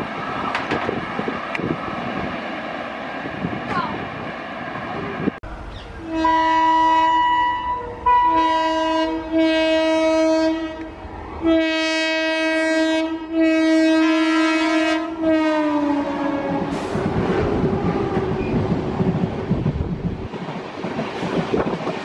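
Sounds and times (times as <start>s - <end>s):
locomotive air horn blasts: 6.0s - 16.9s.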